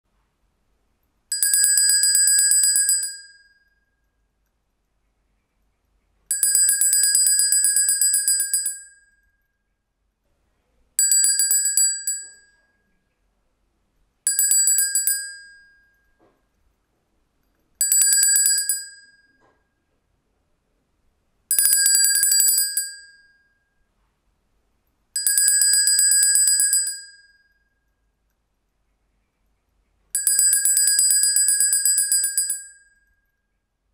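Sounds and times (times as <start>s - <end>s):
metal handbell ringing: 1.3s - 3.8s, 11.0s - 12.6s, 14.3s - 16.2s, 25.2s - 27.6s, 30.1s - 33.2s.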